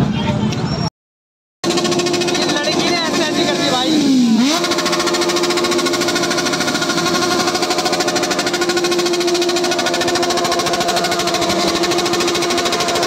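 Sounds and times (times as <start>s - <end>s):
motorcycle engine idling: 1.6s - 13.0s.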